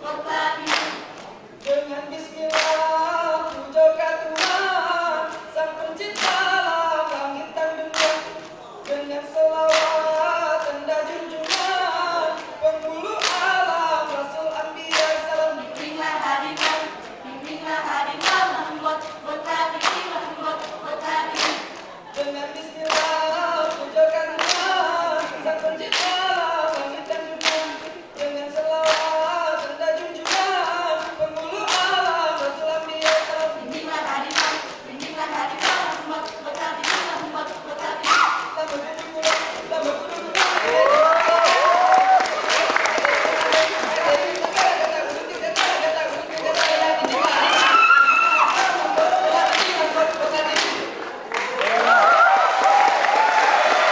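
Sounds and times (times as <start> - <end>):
sharp hand claps: 0.7 - 1.8, 2.5 - 2.8, 4.4 - 4.7, 6.2 - 6.5, 7.9 - 9.0, 9.7 - 10.8, 11.4 - 12.5, 13.2 - 14.2, 14.9 - 15.9, 16.6 - 17.2, 19.8 - 22.3, 22.9 - 23.2, 24.4 - 37.3, 38.0 - 53.9
group chanting without instruments: 28.8 - 53.9.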